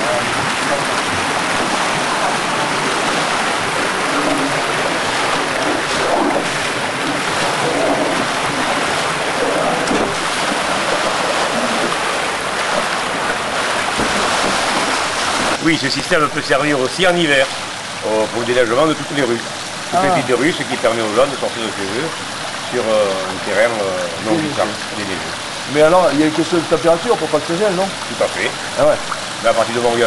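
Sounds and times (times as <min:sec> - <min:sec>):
water rushing along street: 0:00.0 - 0:30.0.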